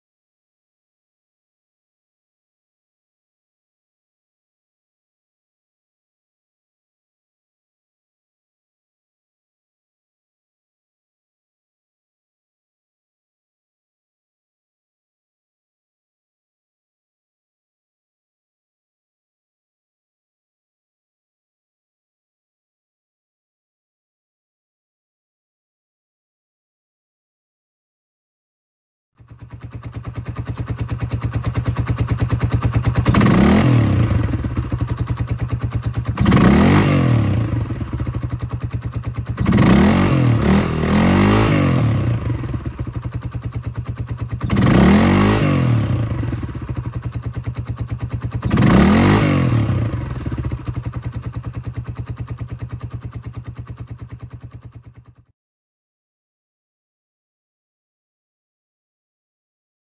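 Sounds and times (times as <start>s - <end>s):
motorcycle engine revving: 29.2s - 55.3s.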